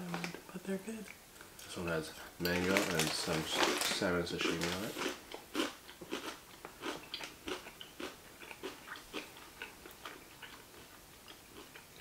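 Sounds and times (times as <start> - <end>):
moist chewing: 5.0 - 12.0.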